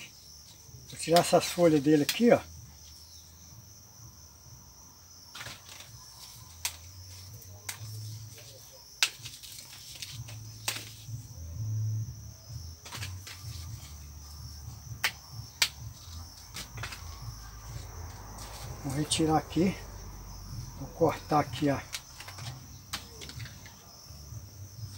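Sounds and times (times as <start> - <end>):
leaves rustling: 0.0 - 3.1, 5.3 - 11.4, 12.8 - 14.8, 15.7 - 24.9
insects chirring: 0.0 - 24.9
leaves snapping off branch: 1.0 - 2.3, 9.0 - 11.1, 15.0 - 15.9, 21.9 - 23.8.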